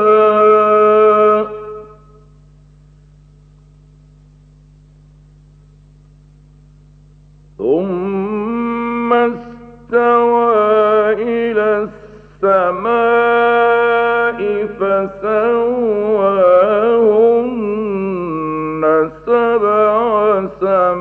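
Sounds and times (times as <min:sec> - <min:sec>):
man chanting melodically: 0:00.0 - 0:02.2, 0:07.6 - 0:21.0
faint steady hum: 0:00.0 - 0:21.0.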